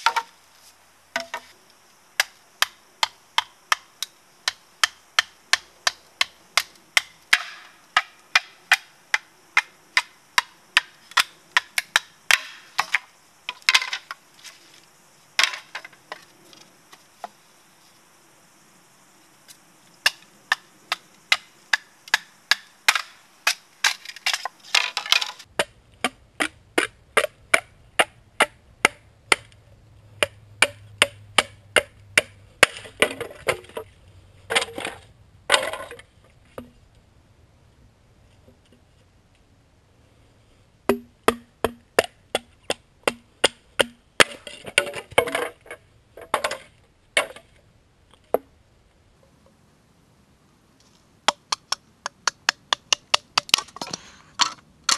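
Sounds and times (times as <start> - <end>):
bamboo crackling: 0.0 - 17.9, 19.4 - 37.0, 50.8 - 54.9.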